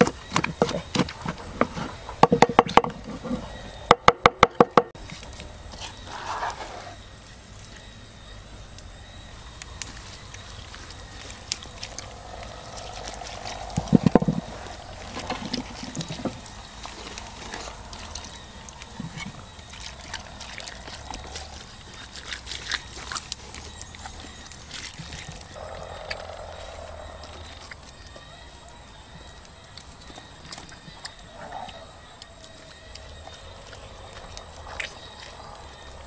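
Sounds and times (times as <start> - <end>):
water trickling and sloshing: 5.0 - 36.0.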